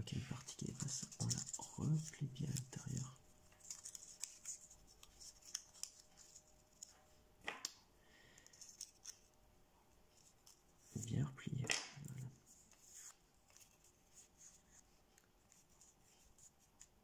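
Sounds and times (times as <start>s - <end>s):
paper crinkling and clicking: 0.4s - 7.0s, 8.4s - 9.3s.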